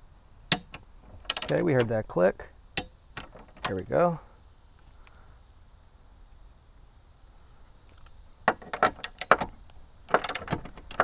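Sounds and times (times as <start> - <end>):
torque wrench ratcheting clicks: 0.5 - 1.9, 8.6 - 11.0.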